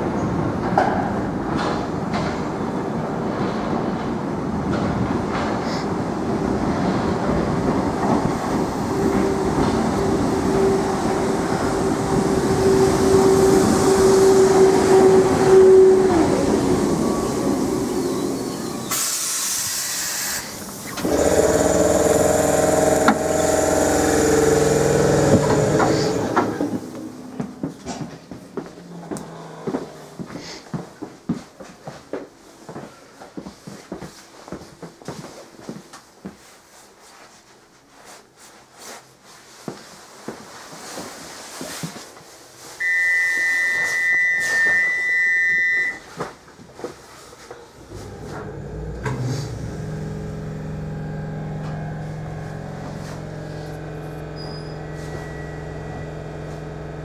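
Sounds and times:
electric train humming: 0:06.2 - 0:27.5, 0:47.9 - 0:57.0
air hiss: 0:17.9 - 0:21.0
high electronic warning tone: 0:42.8 - 0:46.0, 0:52.0 - 0:57.0.

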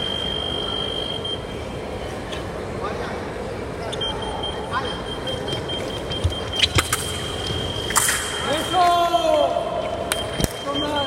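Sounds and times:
high steady electronic tone: 0:00.0 - 0:01.6.

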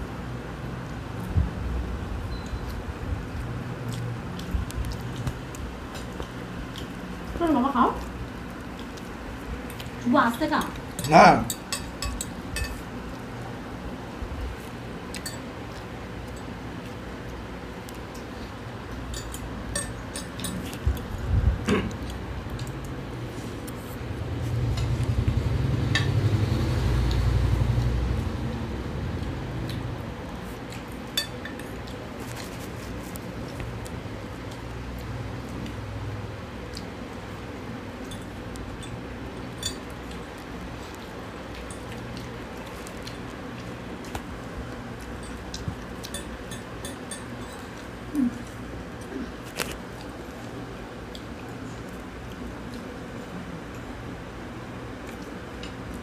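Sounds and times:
steady low hum: 0:00.0 - 0:56.0
cutlery clinking on plates: 0:10.7 - 0:12.8, 0:19.1 - 0:20.8.

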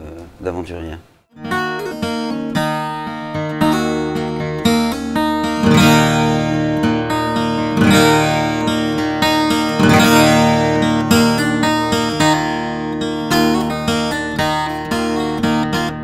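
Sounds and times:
strummed acoustic guitar: 0:01.4 - 0:16.0.

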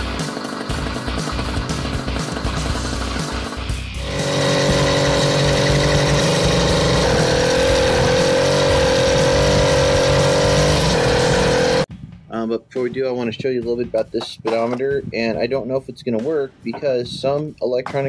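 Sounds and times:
two-stroke bicycle engine running: 0:00.0 - 0:11.9.

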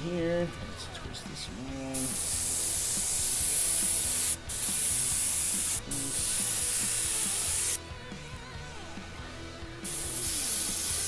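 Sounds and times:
airbrush spraying hiss: 0:02.0 - 0:07.8, 0:09.8 - 0:11.0.

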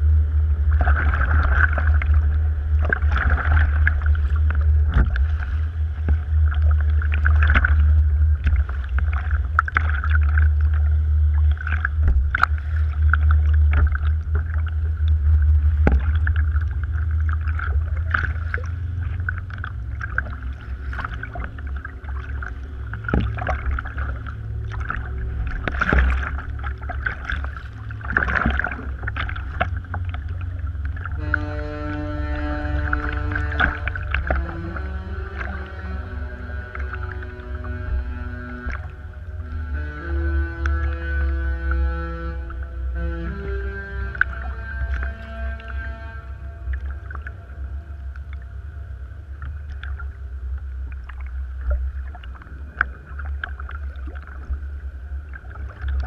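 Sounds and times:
wind rumble on camera: 0:00.0 - 0:39.5
water splashing against hull: 0:00.0 - 0:56.0
kayak paddle strokes: 0:00.6 - 0:48.4.

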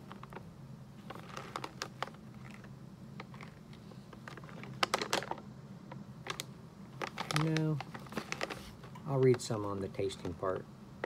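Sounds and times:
steady low hum: 0:00.0 - 0:11.0
plastic bag crinkling: 0:01.0 - 0:05.4, 0:06.2 - 0:10.3.

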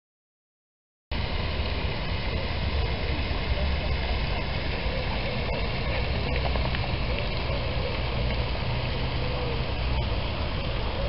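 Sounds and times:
fountain spray hissing onto water: 0:01.2 - 0:11.0.

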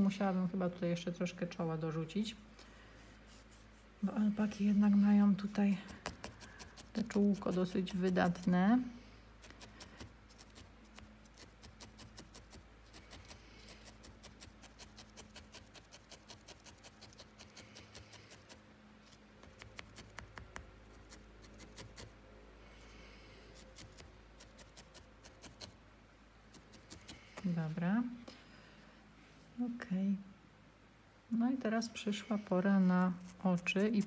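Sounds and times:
felting needle poking wool: 0:02.6 - 0:22.1, 0:23.6 - 0:25.8, 0:26.5 - 0:27.9, 0:32.5 - 0:34.0.

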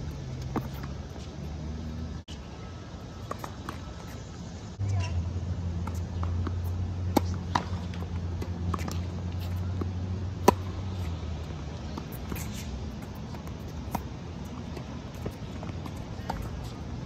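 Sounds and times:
tennis ball bouncing: 0:00.4 - 0:01.5, 0:05.8 - 0:16.8
tennis racket hitting ball: 0:05.8 - 0:11.1.

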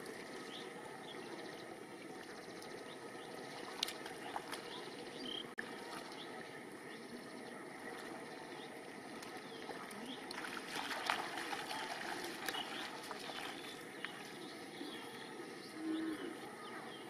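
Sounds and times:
bare feet splashing in mud: 0:03.6 - 0:04.9, 0:09.1 - 0:14.4.

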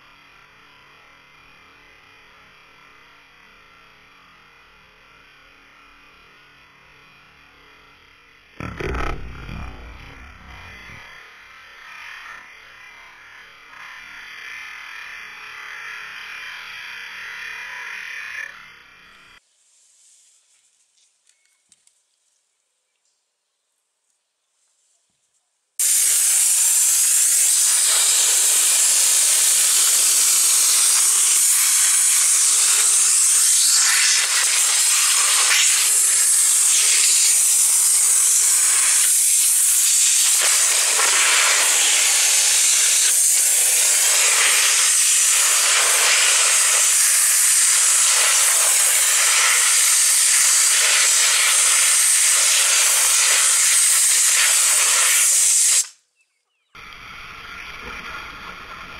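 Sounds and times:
pressure washer jet hissing: 0:25.8 - 0:55.9.

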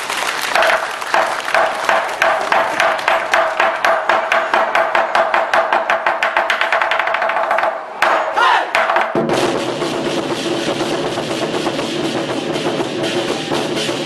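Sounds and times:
festival drums: 0:00.0 - 0:14.0
hand cymbals: 0:09.6 - 0:14.0.

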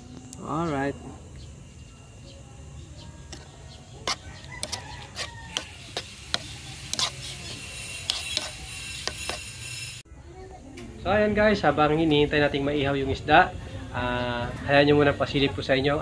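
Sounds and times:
metal spoon clinking bowl: 0:04.1 - 0:09.6.

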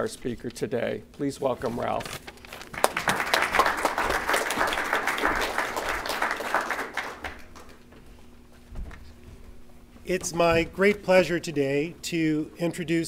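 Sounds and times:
audience applauding: 0:02.6 - 0:07.8.

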